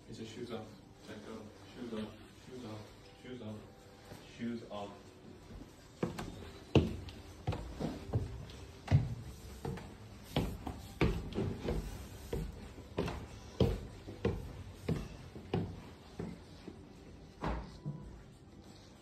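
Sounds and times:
footsteps on wooden stairs: 0:05.6 - 0:18.2.

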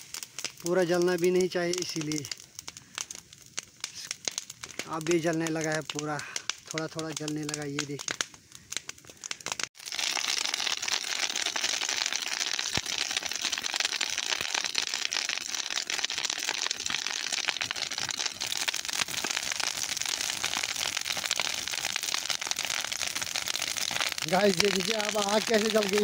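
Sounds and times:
fire crackling and popping: 0:00.0 - 0:26.0.

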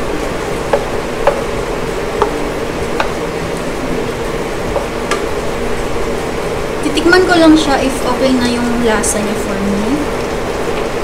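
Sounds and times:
sauce bubbling in pan: 0:00.4 - 0:05.9
spatula knocking against pan: 0:00.7 - 0:01.5, 0:03.0 - 0:03.2.

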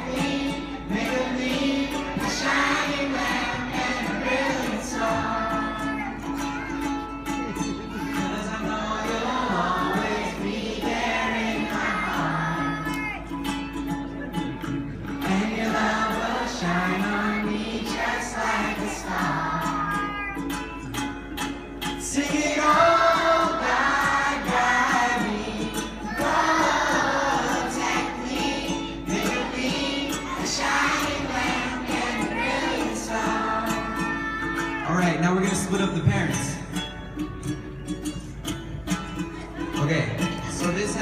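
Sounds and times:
children's choir singing: 0:00.0 - 0:34.9
strummed acoustic guitar: 0:00.0 - 0:41.0.

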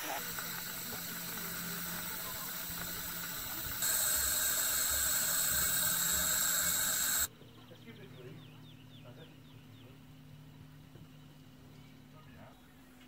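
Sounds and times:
steam hissing from locomotive: 0:00.0 - 0:07.3.

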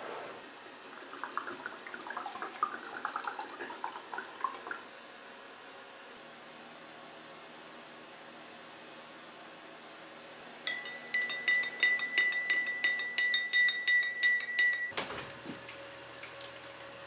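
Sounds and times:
light bright clinks: 0:10.7 - 0:15.0.

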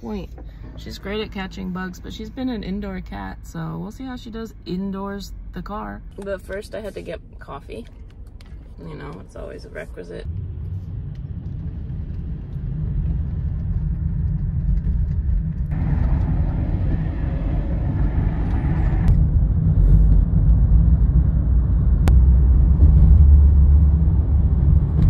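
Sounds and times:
car cabin road and engine rumble: 0:00.0 - 0:25.0
higher-pitched rushing noise: 0:15.7 - 0:19.2.

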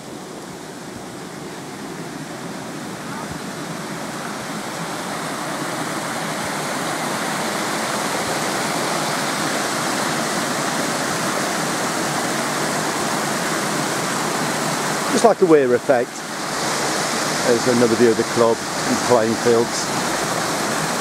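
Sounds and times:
water rushing down a weir: 0:00.0 - 0:21.0.

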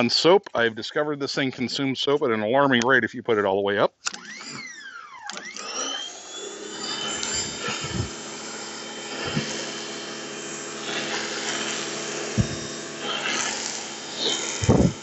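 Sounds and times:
pressure washer motor whining: 0:04.0 - 0:15.0.

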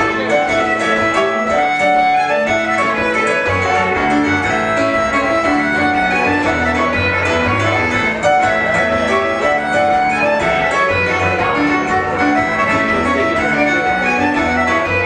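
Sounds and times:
fiddle tune: 0:00.0 - 0:15.0
keyboard with deep bass: 0:02.5 - 0:15.0.

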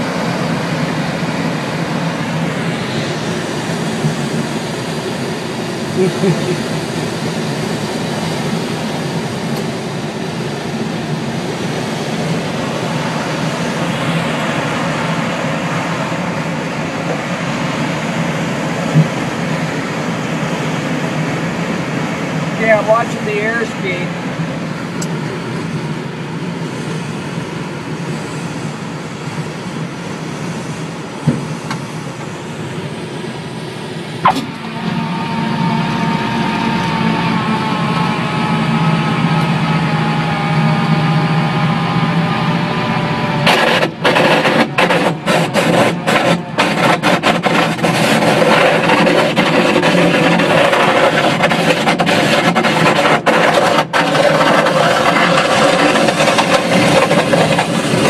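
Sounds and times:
airflow noise: 0:00.0 - 0:58.0
humming tone falling in pitch: 0:34.2 - 0:43.4
rough rumble: 0:43.0 - 0:58.0.

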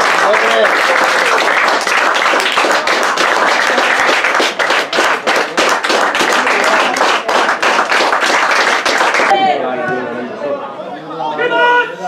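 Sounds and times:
spectators applauding: 0:00.0 - 0:09.4.

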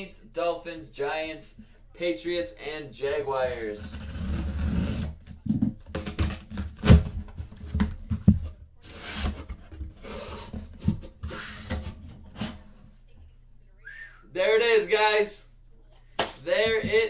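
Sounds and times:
cardboard box scraping and knocking: 0:03.9 - 0:12.7.

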